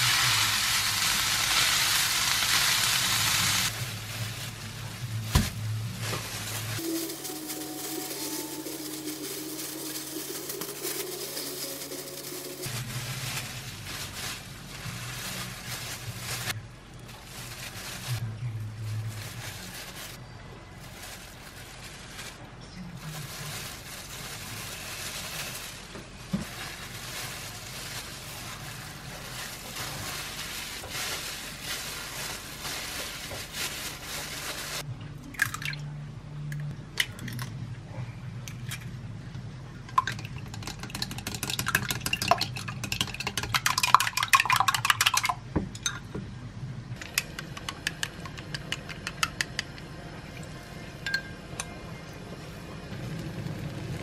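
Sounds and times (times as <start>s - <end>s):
plastic gloves rustling: 0.0s - 34.9s
eggs beaten in glass mug: 39.9s - 45.4s, 47.0s - 49.8s
eggs cracking: 39.9s - 45.4s, 47.0s - 49.9s.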